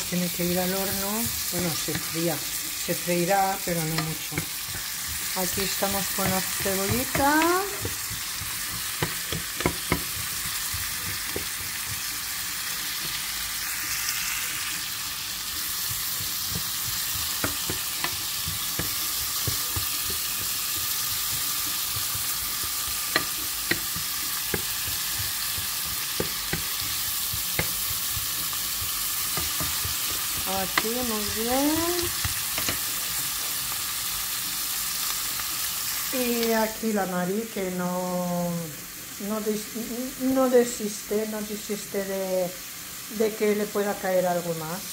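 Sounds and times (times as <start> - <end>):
onion sizzling in a frying pan: 0.0 - 44.9
wooden spoon knocking against pan: 3.8 - 12.1, 15.8 - 32.8.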